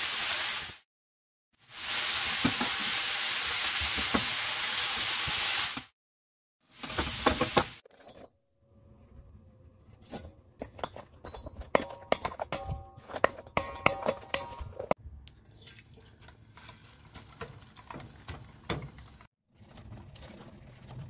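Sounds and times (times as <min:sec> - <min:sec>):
utensil clinking in metal bowl: 0:10.1 - 0:15.0.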